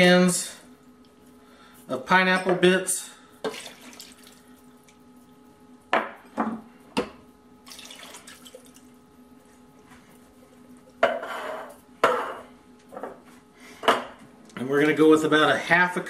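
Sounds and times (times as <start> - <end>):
fruit and juice pouring splash: 3.5 - 4.4, 7.6 - 8.8.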